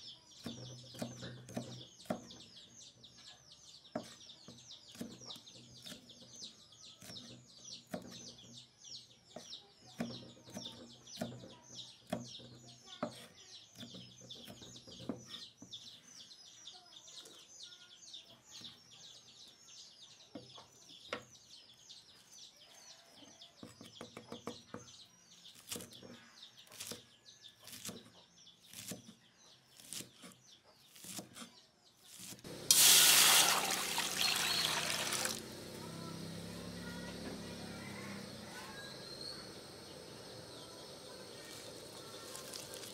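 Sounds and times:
knife chopping on wooden board: 0:00.4 - 0:02.3
liquid poured into hot wok hissing: 0:32.6 - 0:35.4, 0:41.4 - 0:42.9
fast high chirping: 0:32.6 - 0:42.9.

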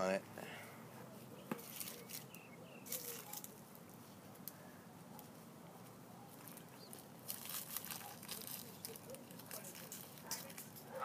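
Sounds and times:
hands scraping and patting soil: 0:01.2 - 0:10.8.

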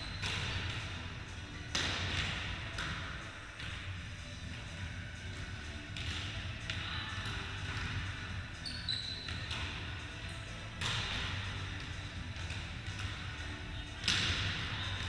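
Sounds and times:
short high squeak: 0:08.6 - 0:09.3
volleyball smacks and thuds: 0:10.8 - 0:13.2.

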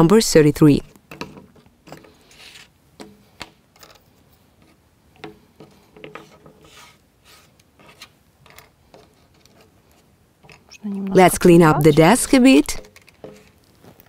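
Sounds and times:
soft rubbing and sliding: 0:02.1 - 0:02.8, 0:05.7 - 0:10.2.

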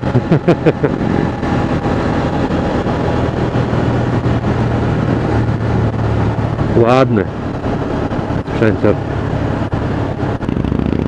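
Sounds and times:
motorcycle engine cruising: 0:00.0 - 0:11.0
wind rush over microphone: 0:00.0 - 0:11.0.

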